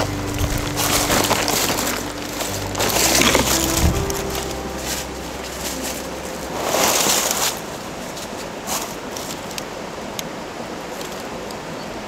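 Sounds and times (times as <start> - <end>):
tent fabric rustling: 0.0 - 9.6.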